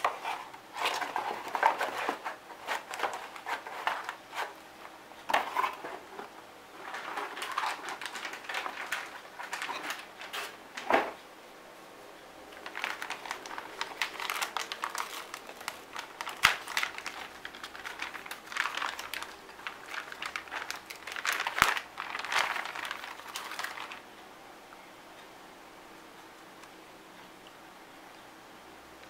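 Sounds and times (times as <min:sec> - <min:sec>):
plastic bag crinkling: 0:00.0 - 0:04.6, 0:05.3 - 0:10.9, 0:12.5 - 0:24.1.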